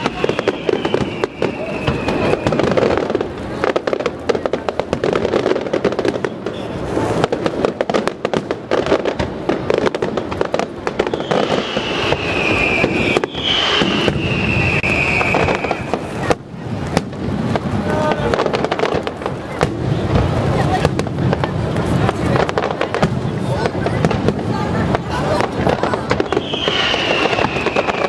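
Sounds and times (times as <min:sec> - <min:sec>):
high firework whistles: 0:00.0 - 0:03.8, 0:10.9 - 0:16.9, 0:25.2 - 0:28.0
fireworks bangs and crackling: 0:00.0 - 0:28.0.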